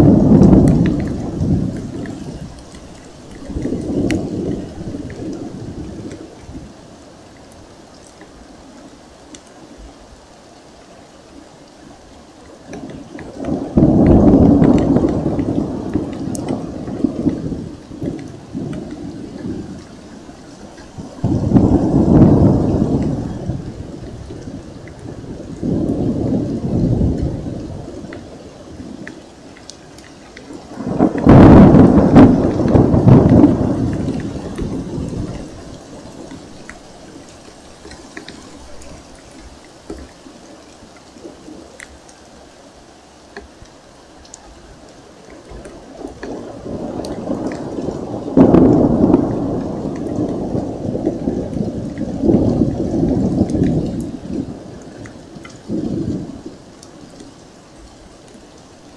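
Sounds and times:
thunder rolling: 0.0s - 6.8s, 12.7s - 29.2s, 30.4s - 39.2s, 45.5s - 57.2s
steady rain: 0.0s - 58.9s
water dripping: 0.0s - 58.9s.

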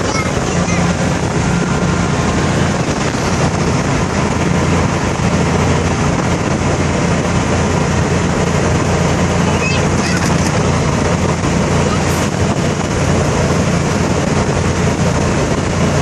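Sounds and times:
wind rushing past: 0.0s - 9.5s
golf cart motor hum: 0.0s - 16.0s
tyre and road noise: 0.0s - 16.0s.

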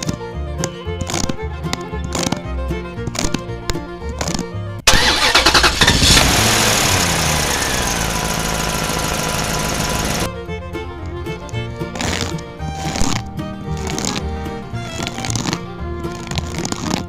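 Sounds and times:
background music: 0.0s - 5.3s, 10.2s - 17.0s
truck engine starting and revving: 4.9s - 10.3s.

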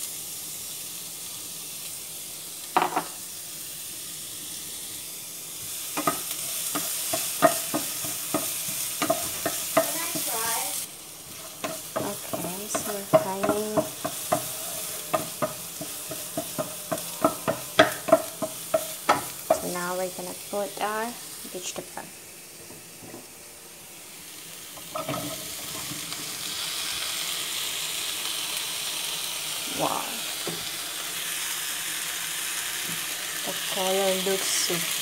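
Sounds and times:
onion and garlic sizzling in oil: 0.0s - 35.0s
wooden spatula scraping pan: 11.3s - 19.6s.

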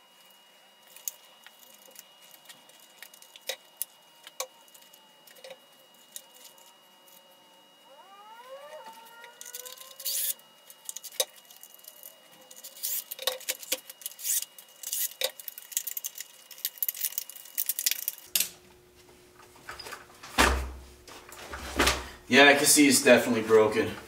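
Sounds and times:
faint low hum: 0.0s - 24.0s
impact driver motor whirring: 8.1s - 11.2s.

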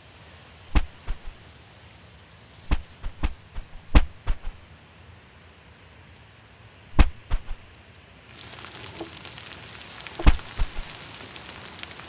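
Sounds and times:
steady hiss: 0.0s - 12.0s
sharp cartoon hits: 7.0s - 7.7s.

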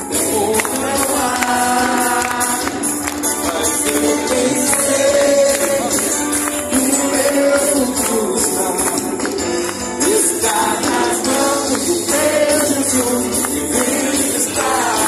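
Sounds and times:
live band music: 0.0s - 15.0s
person singing: 0.0s - 15.0s.

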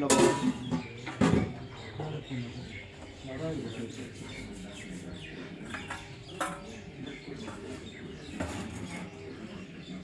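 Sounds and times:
ladle clinking against pot: 0.0s - 1.6s
low background voices: 0.0s - 10.0s.

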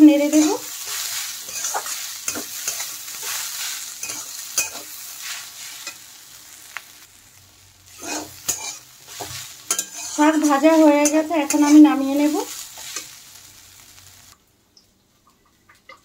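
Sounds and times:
stir-fry sizzling: 0.0s - 14.4s
metal spatula scraping a pan: 0.1s - 6.2s, 7.9s - 13.2s.

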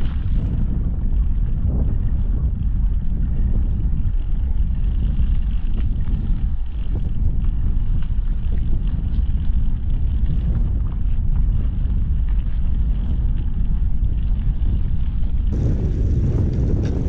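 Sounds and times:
bicycle tyres rolling on wet path: 0.0s - 17.0s
wind buffeting microphone: 0.0s - 17.0s.

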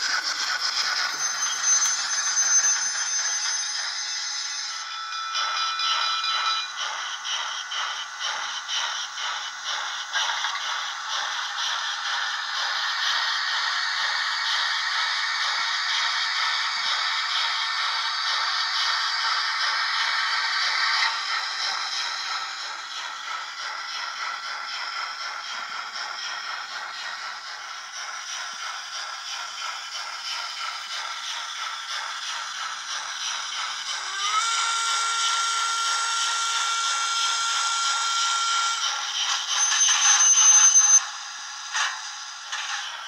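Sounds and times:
model steam locomotive chuffing: 0.0s - 43.0s
steam whistle: 34.1s - 41.0s.

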